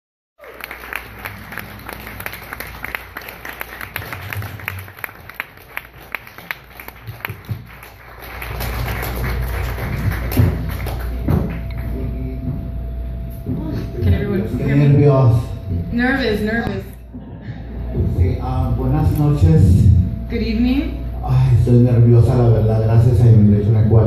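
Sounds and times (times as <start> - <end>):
audience applauding: 0.4 - 12.3.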